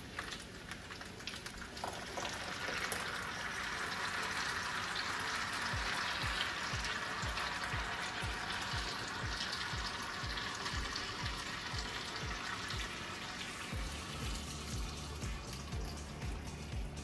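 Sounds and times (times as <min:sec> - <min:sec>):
food sizzling: 0:00.0 - 0:17.0
low thumping beat: 0:05.7 - 0:12.9, 0:13.7 - 0:17.0.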